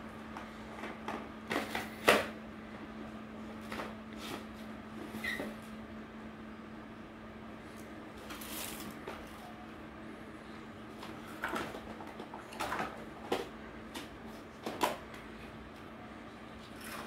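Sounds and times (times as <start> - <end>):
steady low hum: 0.0 - 17.0
plastic toy trucks clattering: 11.3 - 13.5.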